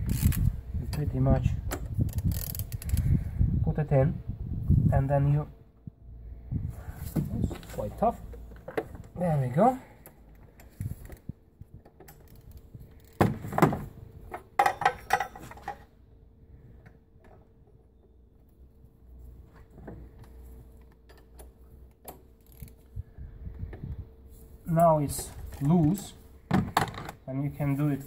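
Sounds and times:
ratchet clicking: 0:00.0 - 0:00.5, 0:02.1 - 0:03.0, 0:22.4 - 0:22.9.

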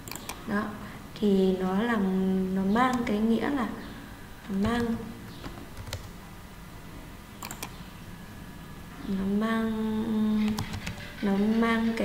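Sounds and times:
computer keyboard clicks: 0:00.0 - 0:00.4, 0:04.5 - 0:06.1, 0:07.4 - 0:07.8, 0:10.4 - 0:11.2.

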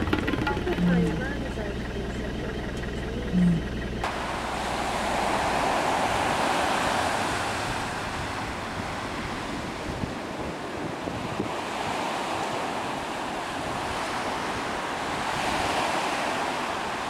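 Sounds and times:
ocean surf washing onto beach: 0:04.0 - 0:17.0.

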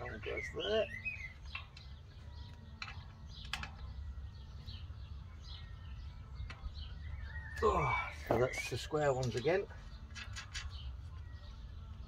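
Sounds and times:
small birds chirping faintly: 0:00.0 - 0:12.0
metal parts and screws clicking: 0:01.4 - 0:04.0, 0:09.2 - 0:11.1.

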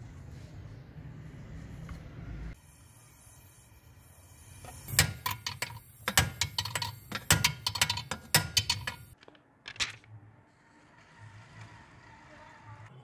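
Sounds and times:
sharp clicks and knocks: 0:04.9 - 0:10.1.

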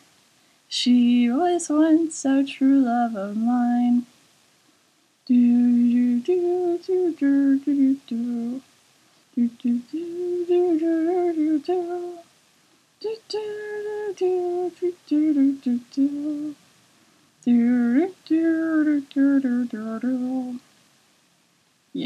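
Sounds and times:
person humming a slow melody: 0:05.3 - 0:08.6, 0:09.4 - 0:12.2, 0:13.0 - 0:16.6, 0:17.4 - 0:20.6.

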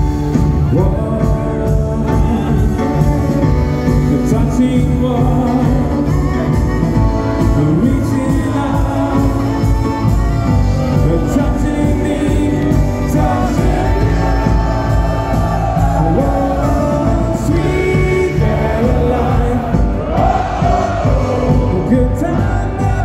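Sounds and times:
pop song over loudspeakers: 0:00.0 - 0:23.0
crowd singing along: 0:10.8 - 0:23.0.

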